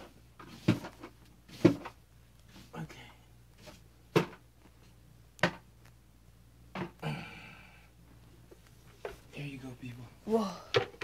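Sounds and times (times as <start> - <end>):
broom knocking: 0.0 - 2.0.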